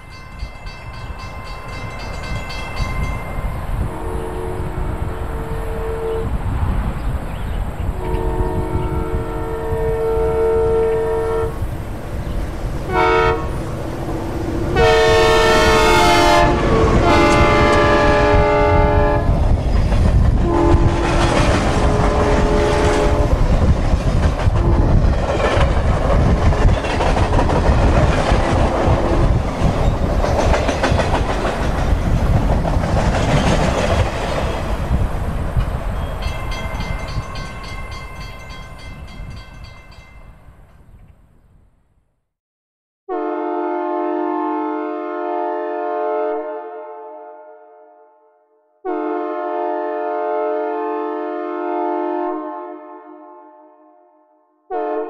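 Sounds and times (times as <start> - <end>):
rumble of passing train: 0.0 - 41.6
train horn blasts: 3.7 - 6.4, 7.9 - 11.8, 12.8 - 19.6, 20.4 - 23.5, 24.5 - 25.1, 43.1 - 55.0.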